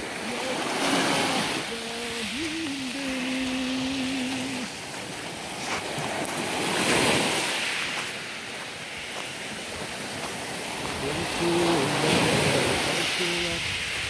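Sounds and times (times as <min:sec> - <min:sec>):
waves washing over pebble beach: 0:00.0 - 0:14.0.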